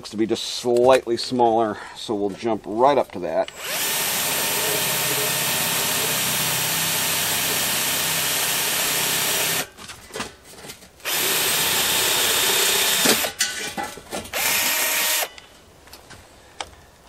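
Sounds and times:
electric drill drilling metal: 0:03.5 - 0:09.7, 0:11.0 - 0:13.4, 0:14.3 - 0:15.4.

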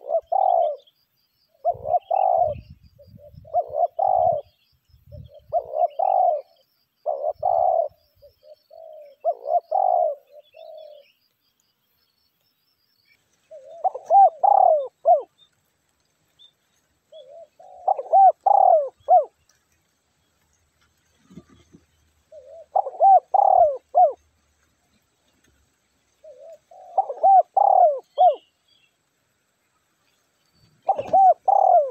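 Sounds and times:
dove cooing: 0:00.0 - 0:00.9, 0:01.6 - 0:11.1, 0:13.5 - 0:15.4, 0:17.1 - 0:19.4, 0:21.2 - 0:24.2, 0:26.2 - 0:28.5, 0:30.8 - 0:31.9.

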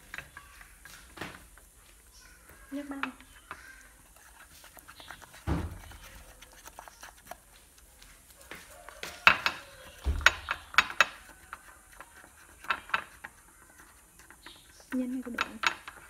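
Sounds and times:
dull thump: 0:05.4 - 0:05.9.

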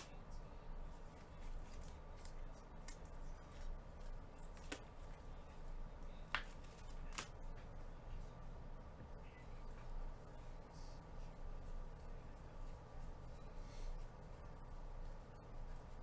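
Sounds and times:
cards clicking and tapping: 0:06.3 - 0:07.3.

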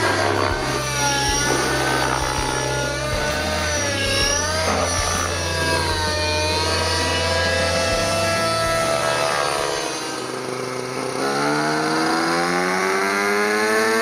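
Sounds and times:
low steady drone: 0:00.0 - 0:14.0
model helicopter engine at high revs: 0:00.0 - 0:14.0.

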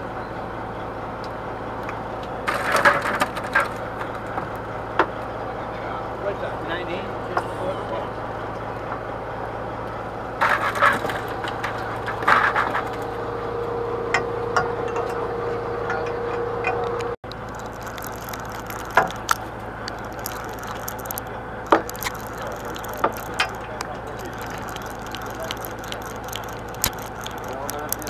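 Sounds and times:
boat engine droning: 0:03.4 - 0:28.0
fishing gear scraping and rattling: 0:10.4 - 0:13.1, 0:17.2 - 0:28.0
sharp clicks: 0:17.2 - 0:28.0.

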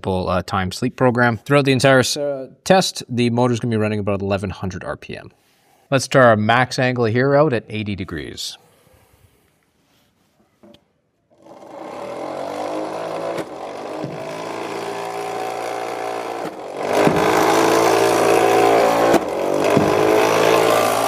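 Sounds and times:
balls knocking through spinning wheel: 0:11.4 - 0:21.0
electric motor whining: 0:11.4 - 0:21.0.

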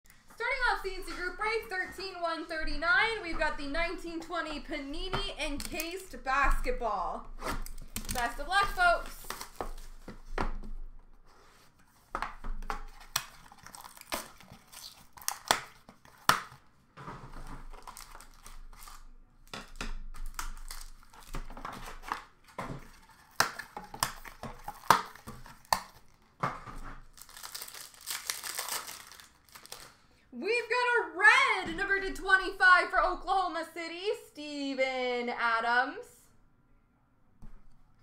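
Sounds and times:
packaging rustling and tearing: 0:07.4 - 0:10.3, 0:11.9 - 0:19.1, 0:20.2 - 0:30.0.

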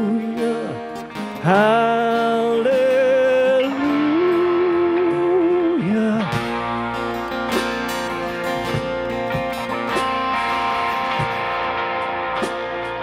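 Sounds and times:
guitar chords: 0:00.0 - 0:13.0
worship band playing: 0:00.0 - 0:13.0
drum hits: 0:06.4 - 0:11.8.

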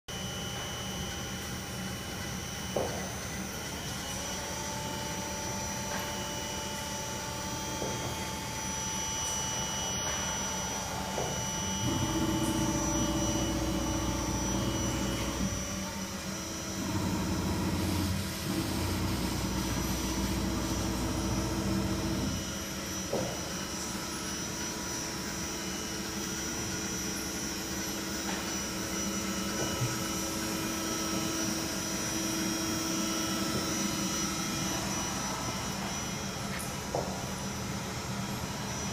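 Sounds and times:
machine shop equipment hum: 0:00.1 - 0:38.9
low machine drone: 0:03.6 - 0:25.5.

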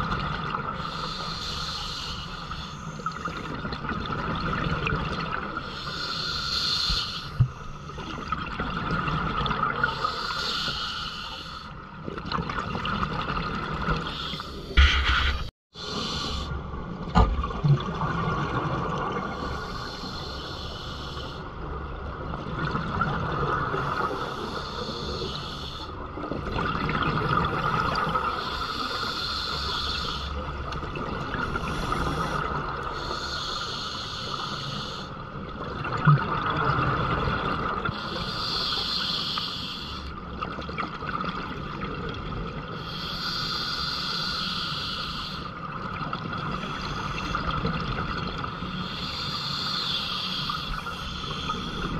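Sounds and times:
regulator inhalation hiss: 0:00.8 - 0:03.0, 0:05.7 - 0:07.4, 0:09.9 - 0:11.7, 0:14.1 - 0:16.5, 0:19.4 - 0:21.4, 0:24.1 - 0:25.9, 0:28.4 - 0:30.4, 0:31.6 - 0:35.1, 0:38.0 - 0:40.1, 0:42.8 - 0:45.5, 0:48.7 - 0:51.9.

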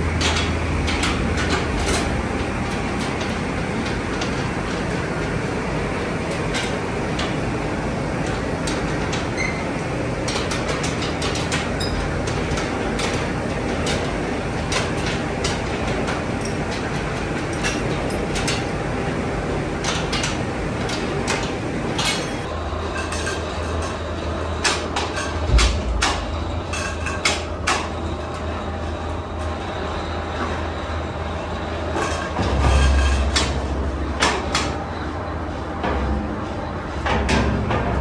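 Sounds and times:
factory machinery running: 0:00.0 - 0:38.0
sharp knocks and clanks: 0:24.6 - 0:28.0, 0:31.9 - 0:34.8, 0:35.8 - 0:36.4, 0:37.0 - 0:38.0.

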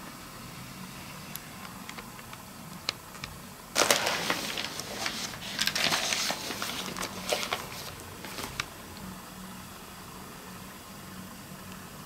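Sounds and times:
rustling crinkling handling noise: 0:03.7 - 0:08.8.

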